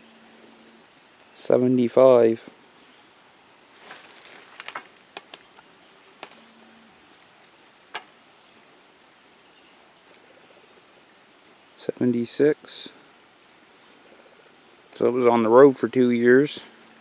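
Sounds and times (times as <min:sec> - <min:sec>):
quiet rustling: 0:03.7 - 0:08.2.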